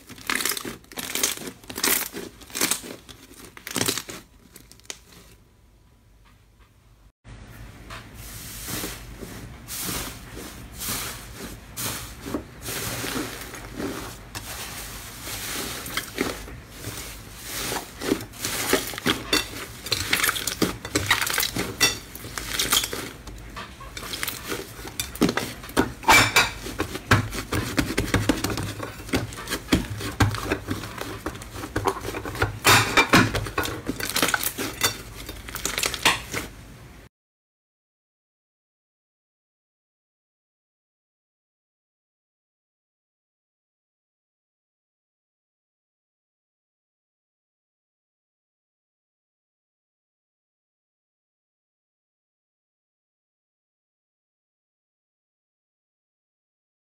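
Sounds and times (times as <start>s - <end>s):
slime crackling and squelching: 0.0s - 5.4s, 8.6s - 36.6s.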